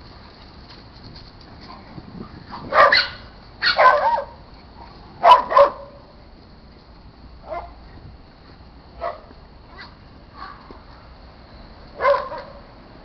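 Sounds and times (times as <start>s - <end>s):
dog barking: 2.6s - 4.4s, 5.2s - 6.0s, 7.5s - 7.8s, 9.0s - 9.3s, 12.0s - 12.6s.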